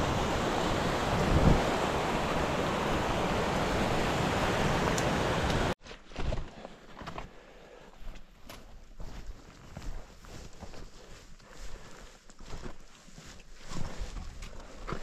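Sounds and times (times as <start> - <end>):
footsteps on a trail: 4.6 - 15.0.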